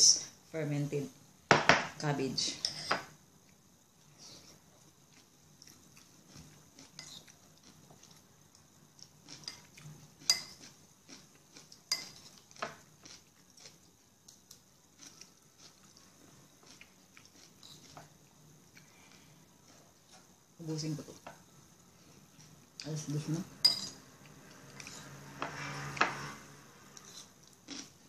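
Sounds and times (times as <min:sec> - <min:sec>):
chewing and crunching cabbage: 0:09.0 - 0:13.9, 0:27.0 - 0:28.0.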